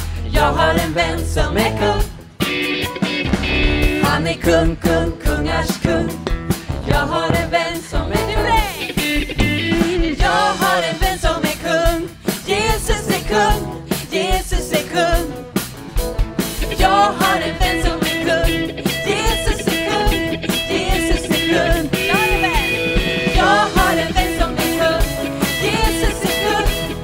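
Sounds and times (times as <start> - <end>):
singers leading worship song: 0.0 - 2.2, 4.0 - 8.9, 9.7 - 15.6, 16.7 - 27.0
keyboard: 0.0 - 27.0
electric guitar: 1.9 - 11.2, 15.2 - 27.0
steady beat: 4.8 - 10.8.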